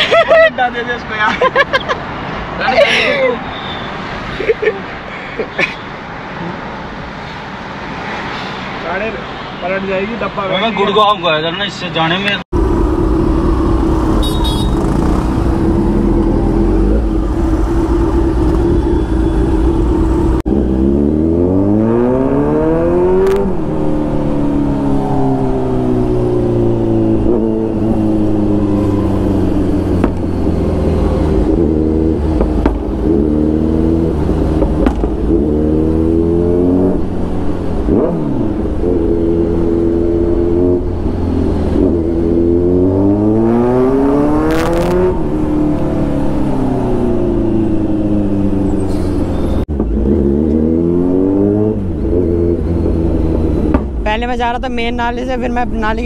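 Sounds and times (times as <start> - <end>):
motorcycle engine idling and accelerating: 12.5 - 56.0.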